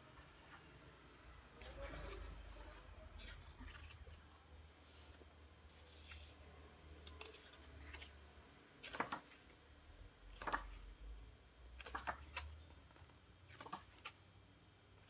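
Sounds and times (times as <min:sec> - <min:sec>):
book pages turning: 0:01.6 - 0:09.6, 0:10.3 - 0:11.1, 0:11.8 - 0:14.2.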